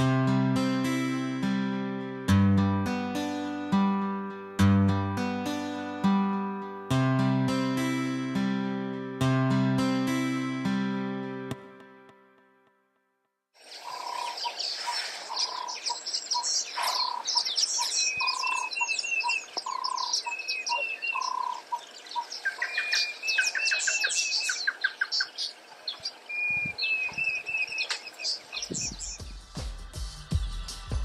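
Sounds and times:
birds chirping and trilling: 13.6 - 29.4
whistled bird phrases: 13.8 - 29.2.

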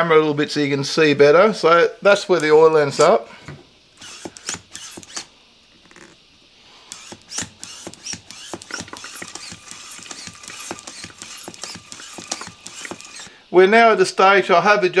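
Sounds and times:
pump clicking and squeaking: 4.0 - 6.2, 6.9 - 13.3.

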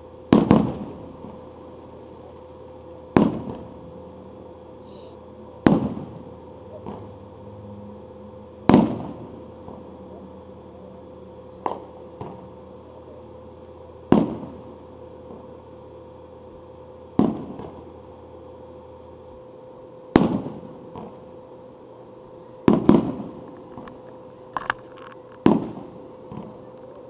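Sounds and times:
faint firework pops: 0.3 - 1.0, 3.1 - 3.7, 5.6 - 6.2, 6.8 - 7.1, 8.7 - 9.8, 11.6 - 12.5, 14.1 - 14.6, 17.2 - 17.8, 20.1 - 21.2, 22.6 - 24.0, 25.4 - 26.6
firework booms with echo: 0.3 - 1.4, 3.1 - 3.8, 5.6 - 7.0, 8.6 - 9.9, 14.1 - 14.7, 17.2 - 17.8, 20.1 - 21.2, 22.7 - 23.4, 25.4 - 26.5.

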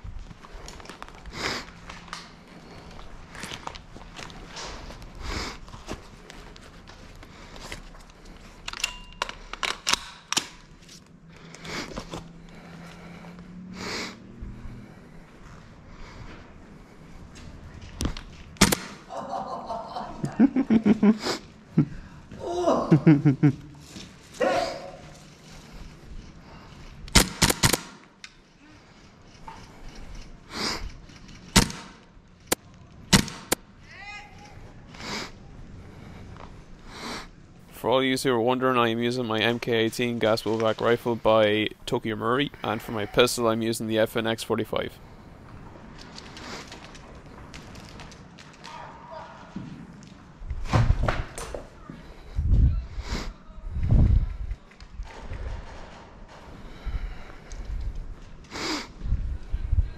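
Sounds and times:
footsteps: 0.0 - 9.4
airsoft guns firing: 18.6 - 19.1, 27.1 - 28.1, 31.5 - 32.0, 33.1 - 33.6.

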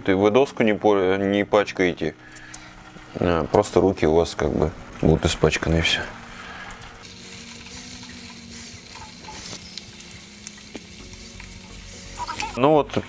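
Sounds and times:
potatoes sizzling in oil: 6.2 - 12.6.

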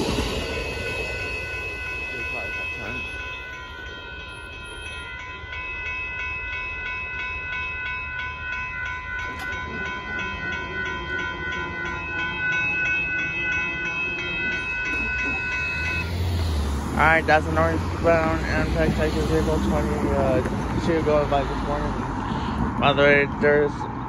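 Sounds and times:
low rumble: 0.0 - 5.2
crossing warning bell ringing: 0.0 - 24.0.

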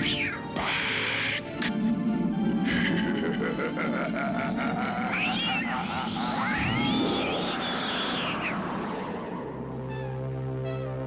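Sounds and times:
rushing noise: 4.4 - 10.2.

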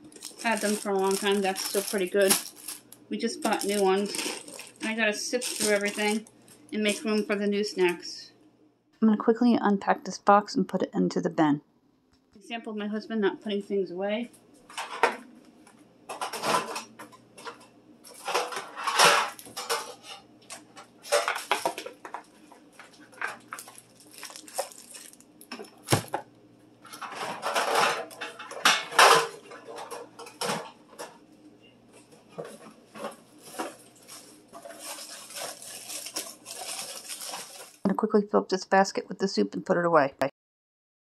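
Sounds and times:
food packages rustling and rattling: 0.0 - 7.8, 16.1 - 26.2, 26.8 - 31.3, 32.0 - 37.8.

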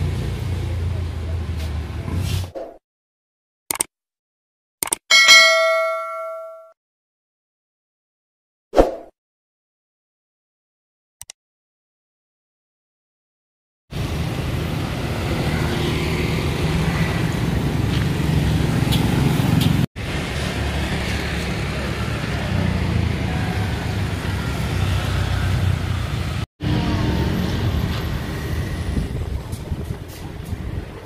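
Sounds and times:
loud traffic rumble: 0.0 - 2.5, 13.9 - 31.0.

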